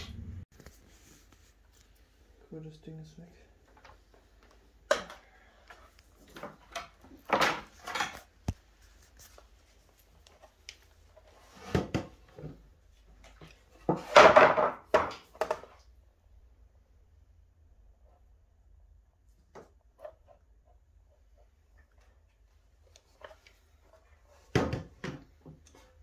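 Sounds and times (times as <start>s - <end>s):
knocks and scrapes of wooden boards: 11.2s - 12.6s, 13.3s - 15.8s.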